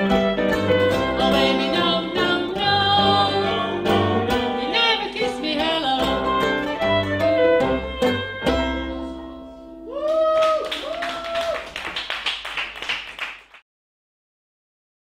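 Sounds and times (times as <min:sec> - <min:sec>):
whooping cheers: 0:09.8 - 0:12.0
audience applause: 0:10.0 - 0:13.6.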